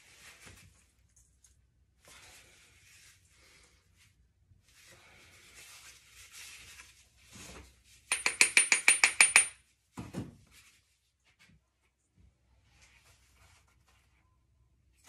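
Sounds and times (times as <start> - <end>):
metal utensil tapping mold: 8.1 - 9.6.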